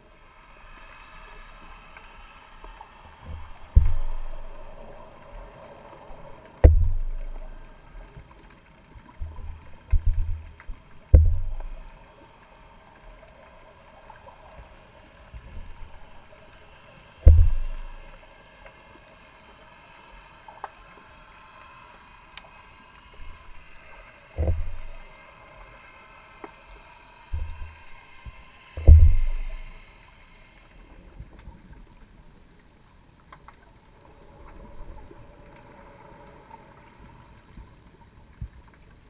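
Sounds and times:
faint underwater hum: 0.0 - 39.0
light ticks: 1.9 - 14.4, 31.3 - 33.8
low thumps: 3.3 - 4.9, 6.2 - 7.7, 9.2 - 11.9, 17.2 - 18.1, 24.4 - 25.0, 27.4 - 28.0, 28.8 - 29.7.

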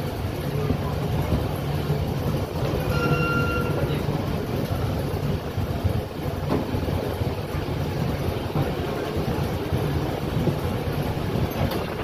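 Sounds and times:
train wheels rumbling on track: 0.0 - 12.0
high squeal: 2.8 - 3.9.

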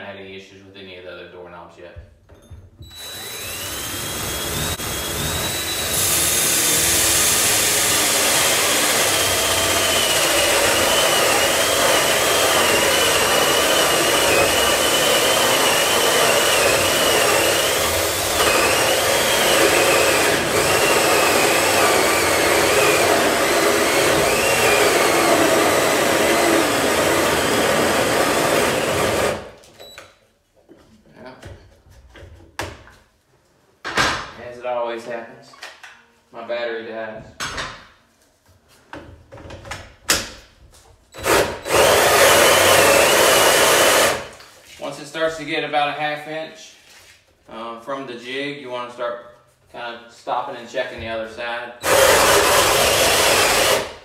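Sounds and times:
cordless drill whining: 2.8 - 29.9, 41.1 - 44.4, 51.8 - 54.0.

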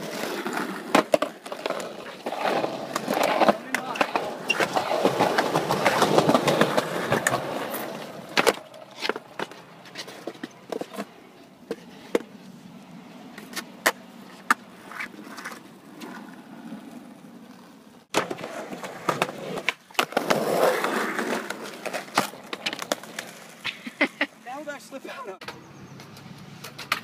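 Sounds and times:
skateboard clacks: 0.0 - 12.3, 13.4 - 16.2, 18.1 - 23.7, 25.4 - 27.0
skateboard wheels rumbling: 0.0 - 25.0.

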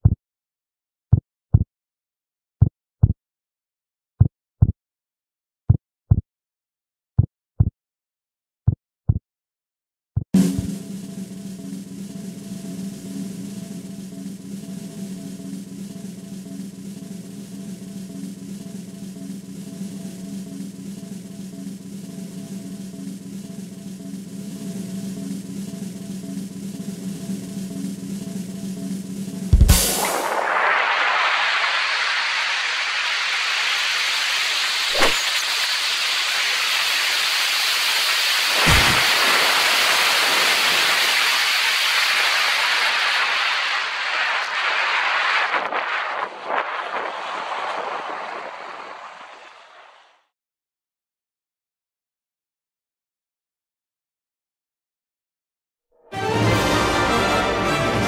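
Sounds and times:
snare drum roll: 10.4 - 25.2, 25.8 - 35.4, 38.4 - 47.2
heartbeat thumps: 29.5 - 30.0
loud crash: 29.5 - 49.8.

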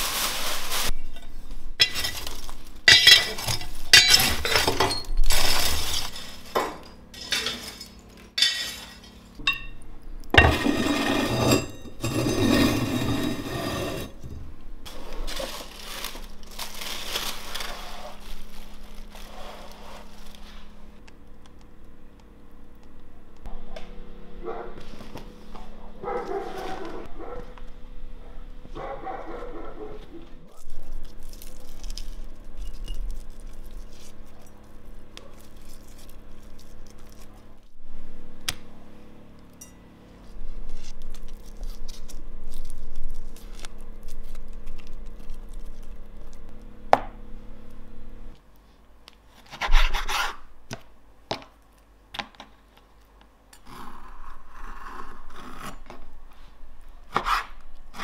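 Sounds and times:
steady low hum: 0.9 - 49.2
peppers being rubbed: 30.6 - 37.6
knife cutting on cutting board: 57.1 - 58.0.

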